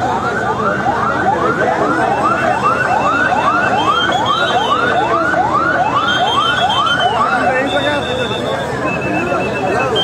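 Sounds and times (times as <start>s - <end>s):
faint wailing siren: 0.0s - 10.0s
large crowd noise: 0.0s - 10.0s
siren yelping: 0.0s - 10.0s.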